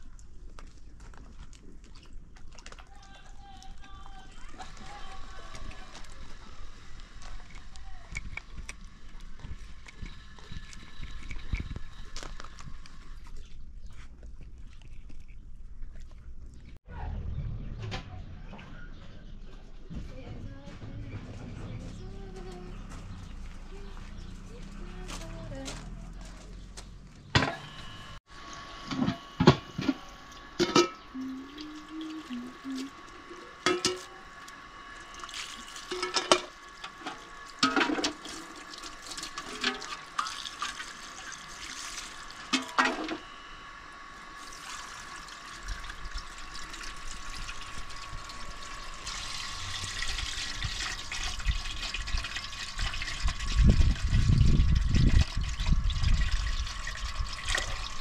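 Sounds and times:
water running and splashing: 0:34.9 - 0:42.8, 0:44.3 - 0:58.0.

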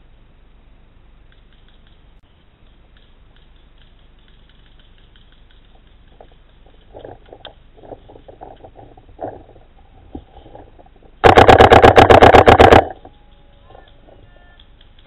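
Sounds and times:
paintball marker firing: 0:11.2 - 0:13.1.

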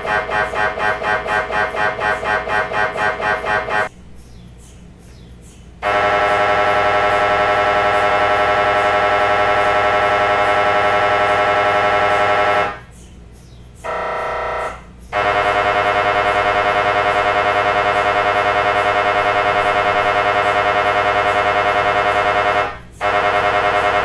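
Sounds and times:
mri scanner pulsing buzz: 0:00.0 - 0:03.9, 0:05.8 - 0:13.0, 0:13.8 - 0:24.0.

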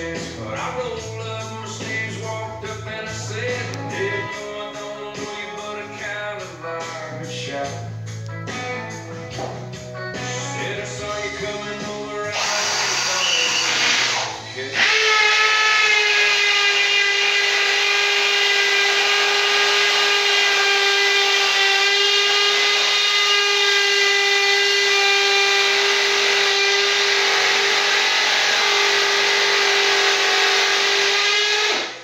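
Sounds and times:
drill motor whining: 0:11.1 - 0:32.0.

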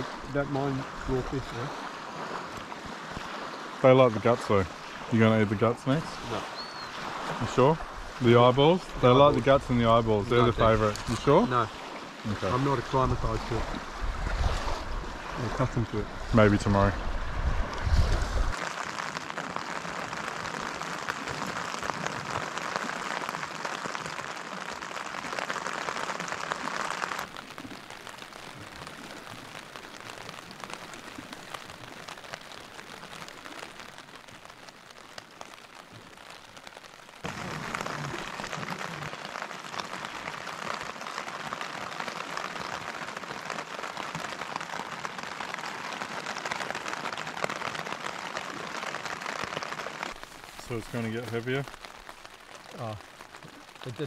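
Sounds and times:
steady rain falling: 0:00.0 - 0:54.0.

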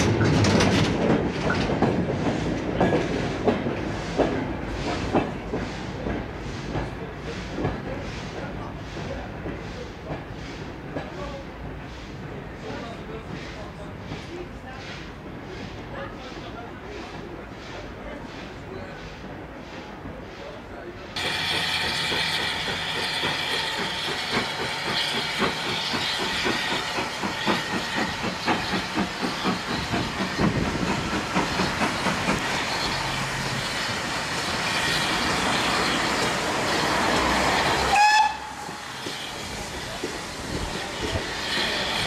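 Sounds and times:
steam locomotive chuffing: 0:00.0 - 0:42.0
train coaches rolling: 0:00.0 - 0:42.0
steam hissing: 0:01.4 - 0:42.0
steam whistle blast: 0:37.9 - 0:38.6.

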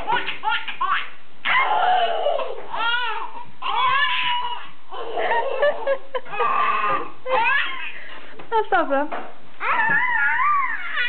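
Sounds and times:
baby laughing shrieks: 0:00.1 - 0:05.6, 0:06.3 - 0:08.0, 0:09.6 - 0:11.0
baby crying in long wails: 0:01.4 - 0:05.7, 0:06.3 - 0:08.0, 0:09.6 - 0:11.0.

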